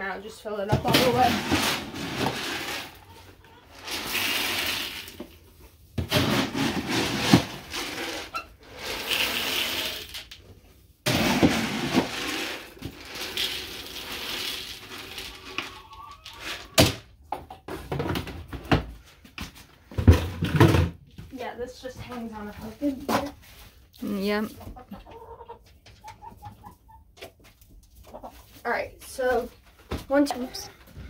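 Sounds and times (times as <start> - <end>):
grain pouring into plastic feeder: 3.7 - 5.3, 6.1 - 10.3, 11.1 - 16.8.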